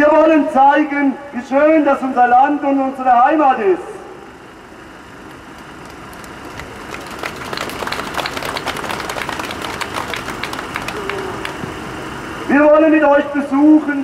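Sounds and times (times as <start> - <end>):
crowd applauding: 5.5 - 12.0.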